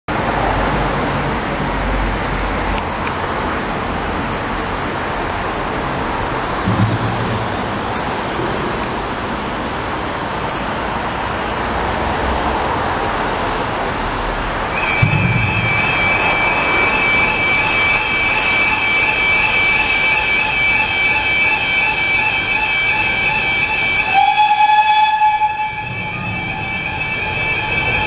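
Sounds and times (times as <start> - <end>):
cars driving past: 0.1 - 20.1, 25.2 - 28.0
tyre and engine noise: 0.1 - 21.3.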